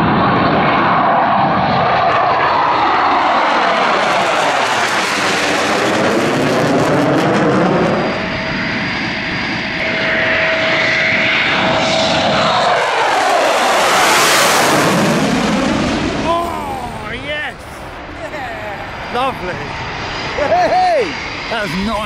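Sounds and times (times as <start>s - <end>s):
jet engine roar: 0.0s - 22.0s
steady whine: 3.4s - 22.0s
bright rising rush: 13.9s - 22.0s.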